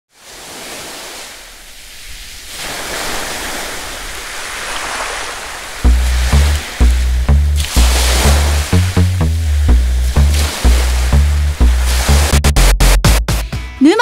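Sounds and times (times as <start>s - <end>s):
steady rushing noise: 5.8s - 13.2s
deep bass theme music: 5.8s - 13.8s.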